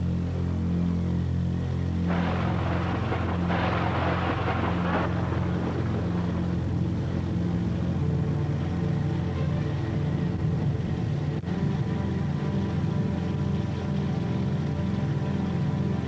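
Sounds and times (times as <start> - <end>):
ominous droning score: 0.0 - 16.0
rushing noise burst: 2.1 - 8.6.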